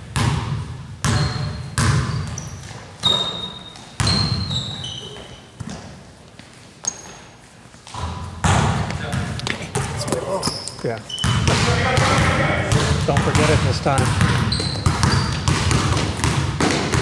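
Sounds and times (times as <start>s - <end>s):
basketball bouncing on hardwood: 0.1s - 4.6s, 7.9s - 10.6s, 11.2s - 17.0s
sneaker squeaks: 1.0s - 6.1s, 6.8s - 11.9s, 12.7s - 17.0s.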